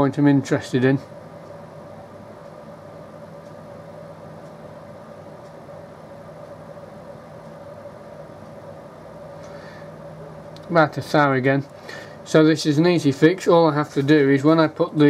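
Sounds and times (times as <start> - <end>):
steady machine hum: 0.0 - 15.0
faint ticks: 2.3 - 6.6.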